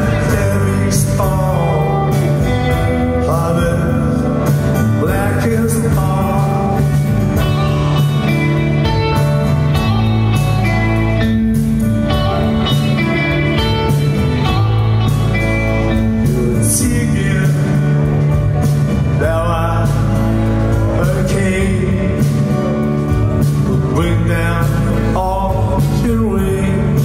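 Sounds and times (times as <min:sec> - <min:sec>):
man singing lead vocal: 0:00.0 - 0:07.5, 0:15.9 - 0:27.0
live rock band playing: 0:00.0 - 0:27.0.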